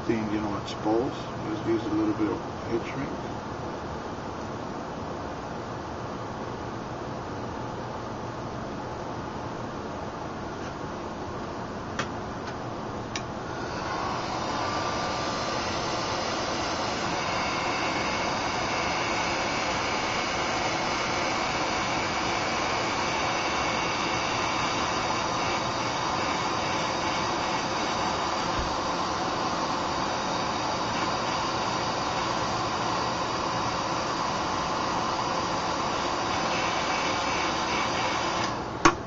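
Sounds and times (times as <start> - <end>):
heat gun blowing: 13.4 - 38.7.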